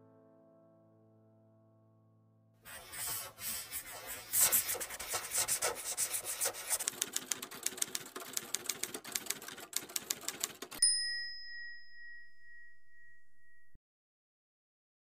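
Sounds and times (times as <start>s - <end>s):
pen scratching on paper: 2.7s - 8.7s
typewriter key clicks: 6.6s - 10.8s.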